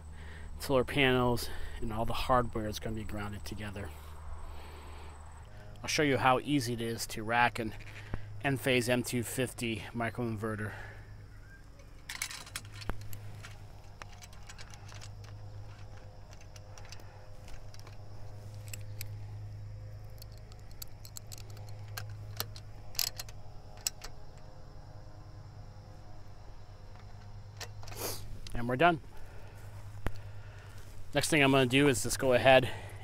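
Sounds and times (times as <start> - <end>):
steady low hum: 0.0 - 33.0
metal hardware clicking and clinking: 11.8 - 19.2, 20.0 - 24.5, 26.8 - 28.6.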